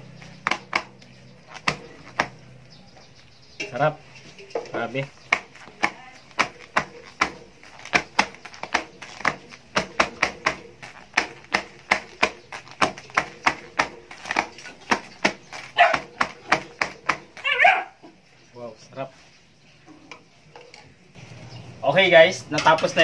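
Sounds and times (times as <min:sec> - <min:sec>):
foil tray clicking and rattling: 0:05.1 - 0:17.4.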